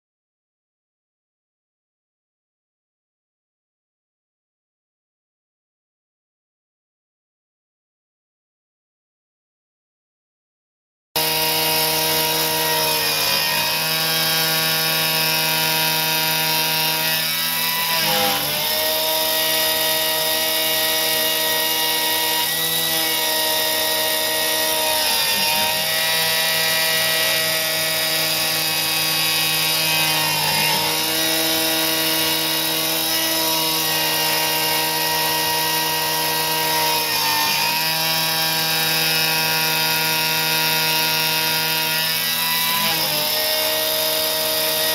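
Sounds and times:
router spindle whine: 11.2s - 44.9s.

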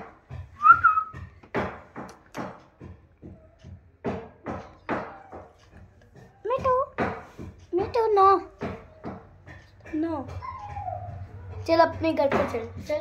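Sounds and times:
parakeet whistle and sharp calls: 0.6s - 1.3s.

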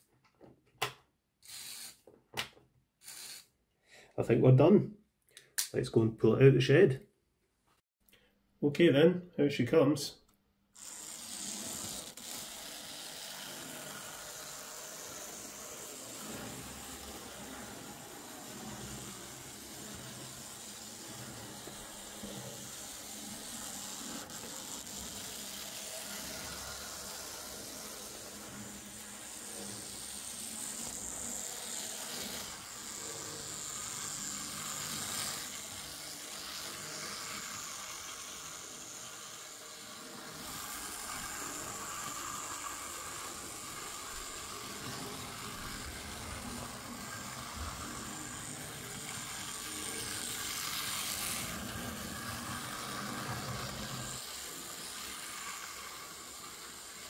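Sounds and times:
model train motor whirring: 1.4s - 2.1s, 3.0s - 3.6s, 10.8s - 57.0s.

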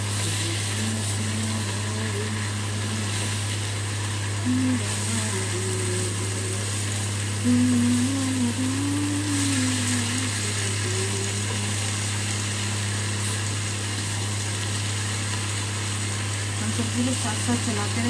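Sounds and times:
wavering hummed tone: 0.0s - 13.8s
low mechanical hum: 0.0s - 18.0s.

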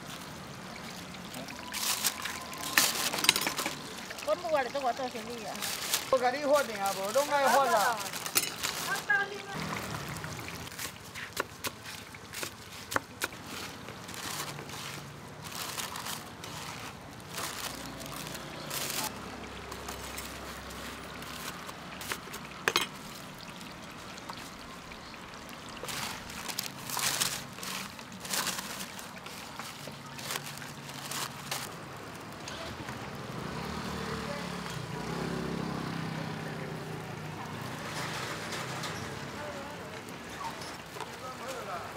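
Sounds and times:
vehicle engine hum: 0.0s - 10.8s, 13.3s - 40.6s
paper bags rustling: 1.3s - 23.3s, 25.3s - 32.3s.

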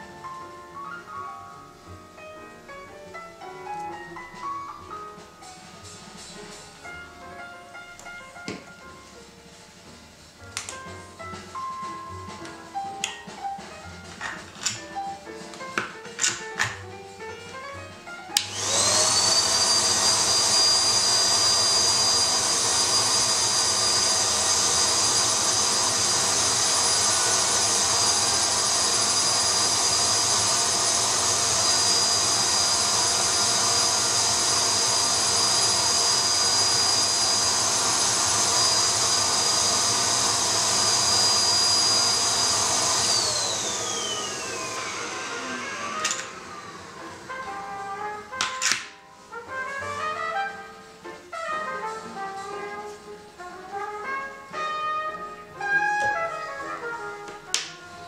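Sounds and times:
vacuum motor whining: 18.3s - 49.0s.

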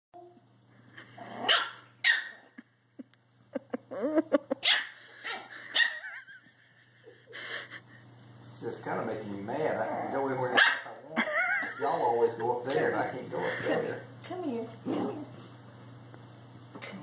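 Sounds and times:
small dogs barking: 1.3s - 2.5s, 4.5s - 6.4s, 10.5s - 11.1s.

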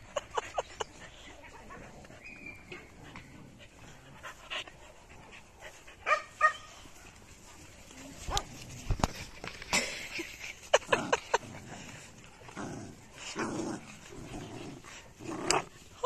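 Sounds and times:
puppies panting: 0.0s - 6.2s.

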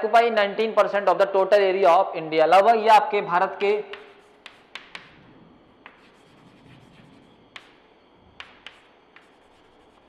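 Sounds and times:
chalk scraping on chalkboard: 3.9s - 5.2s, 5.8s - 10.0s
chalk tapping on board: 3.9s - 5.2s, 5.8s - 10.0s.

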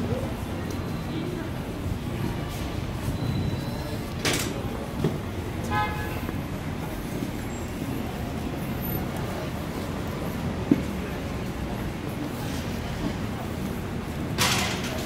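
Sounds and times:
city street traffic: 0.0s - 15.0s
car horn beep: 5.7s - 6.2s.

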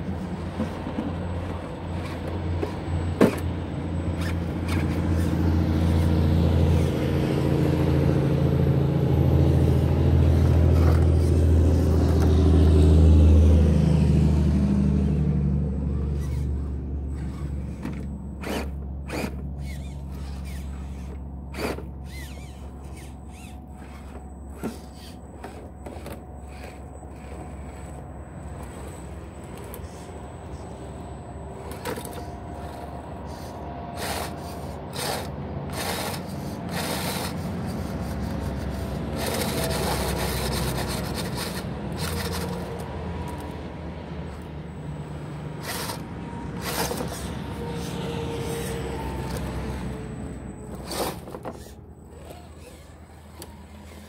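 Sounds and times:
toy car motor whining: 1.4s - 6.9s, 15.9s - 43.6s, 45.1s - 54.0s
tyres scraping on rock: 17.2s - 30.0s, 31.6s - 42.9s.

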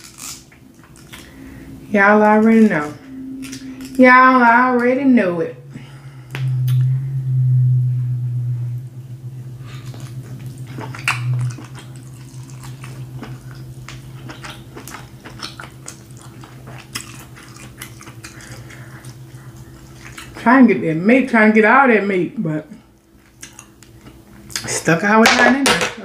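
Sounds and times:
low steady hum: 0.0s - 26.0s
wet eating sounds: 9.7s - 20.4s.

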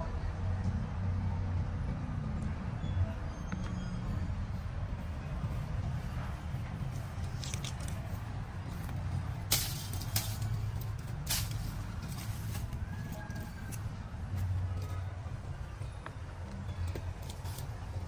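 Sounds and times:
low outdoor rumble: 0.0s - 18.0s
twigs snapping underfoot: 7.2s - 13.9s.

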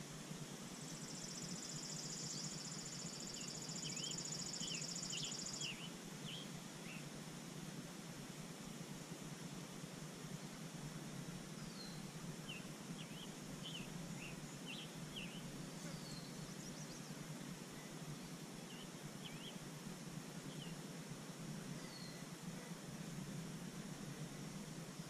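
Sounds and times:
small birds chirping: 0.3s - 7.1s, 11.5s - 19.7s, 20.4s - 20.8s, 21.7s - 22.3s.

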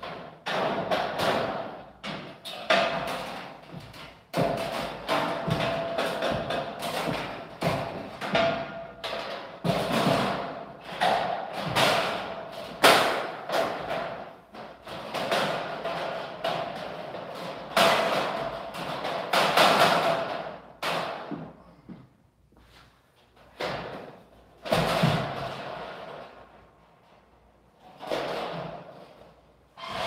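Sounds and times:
metallic knocks and rattles: 0.0s - 21.4s.

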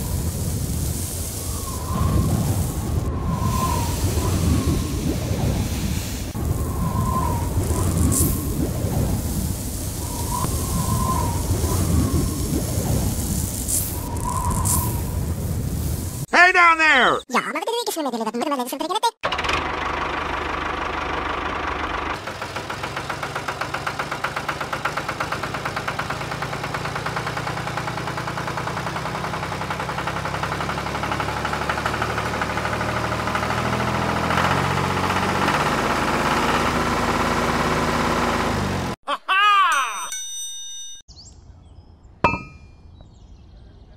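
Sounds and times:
tractor engine chugging: 19.2s - 38.8s.

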